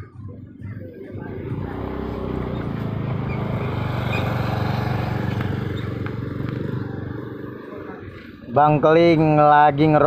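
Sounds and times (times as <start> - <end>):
vehicle engine passing by: 1.0 - 8.5.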